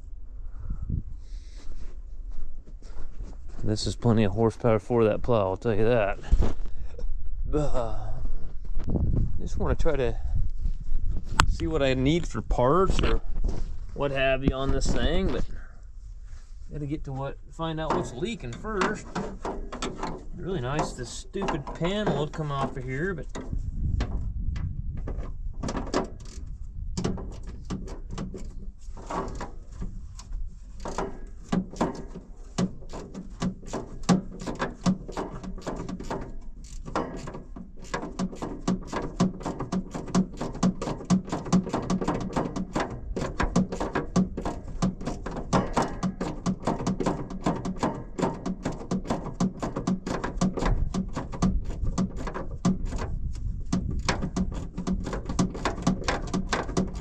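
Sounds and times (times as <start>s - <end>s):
hand tool clicking on fastener: 30.8s - 57.0s.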